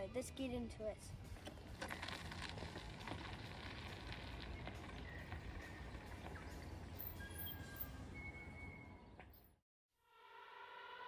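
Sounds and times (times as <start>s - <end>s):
low wind rumble: 0.7s - 9.2s
bike tyres crunching on gravel: 1.3s - 7.6s.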